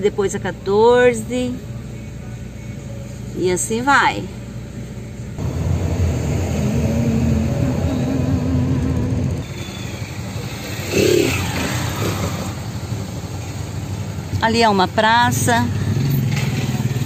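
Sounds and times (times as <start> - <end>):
engines accelerating: 5.4 - 14.2.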